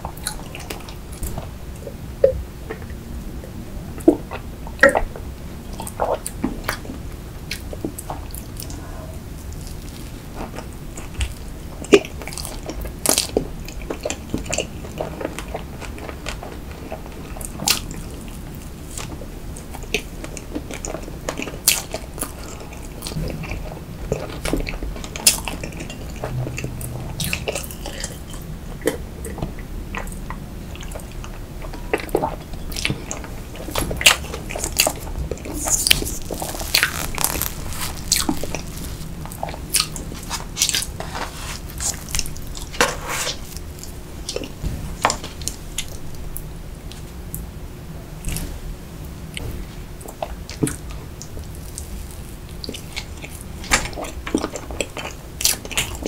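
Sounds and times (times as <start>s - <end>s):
wet chewing and lip smacks: 19.8s - 41.0s.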